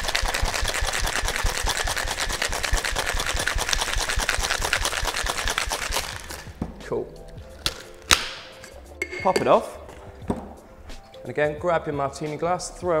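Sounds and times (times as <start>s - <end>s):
ice rattling in a shaker: 0.0s - 6.5s.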